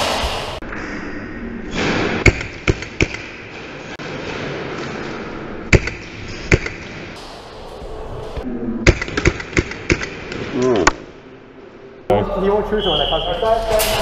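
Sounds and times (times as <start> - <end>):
large room background noise: 0.0 - 14.0.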